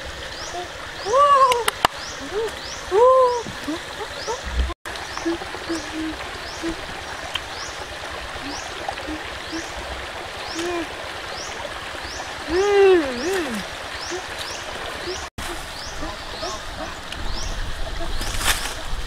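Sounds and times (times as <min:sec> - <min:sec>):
stream running over rocks: 0:00.0 - 0:19.0
short low notes: 0:04.4 - 0:04.8.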